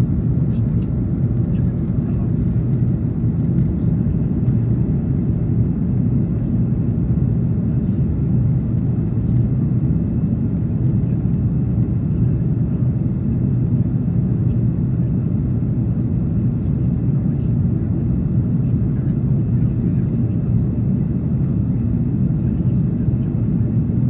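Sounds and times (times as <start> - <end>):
airplane engines rumbling: 0.0 - 24.0.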